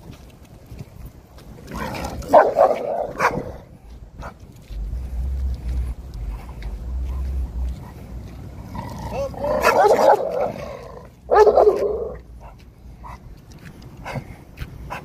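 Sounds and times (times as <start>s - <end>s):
low rumble: 0.0s - 14.6s
dog barking: 2.2s - 3.6s, 9.1s - 13.2s.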